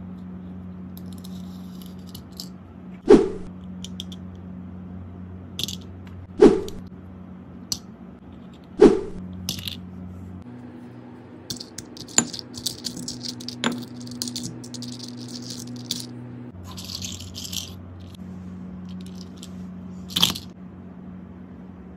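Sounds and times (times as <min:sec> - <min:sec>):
steady low hum: 0:00.0 - 0:21.9
plastic toys clicking and rattling: 0:01.0 - 0:02.5, 0:11.5 - 0:18.2, 0:18.9 - 0:19.5, 0:20.1 - 0:20.5
scraping rattle: 0:11.5 - 0:18.2.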